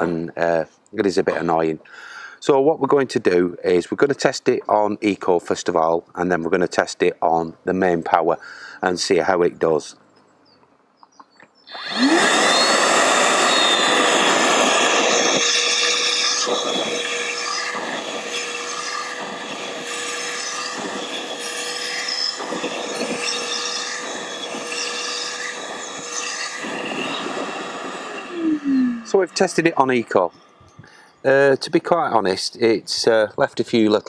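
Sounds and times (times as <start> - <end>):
vacuum cleaner motor humming: 11.7 - 29.8
vacuum nozzle rasping over carpet: 11.7 - 30.2.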